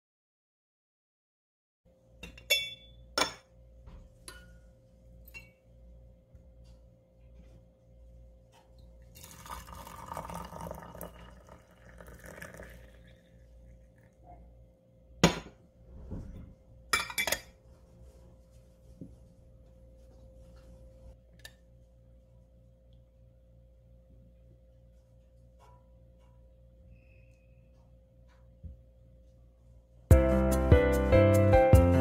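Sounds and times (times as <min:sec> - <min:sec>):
glassware clinks: 0:02.2 - 0:03.4, 0:05.2 - 0:05.6, 0:17.0 - 0:17.5
hot water pouring into teapot: 0:09.1 - 0:14.1.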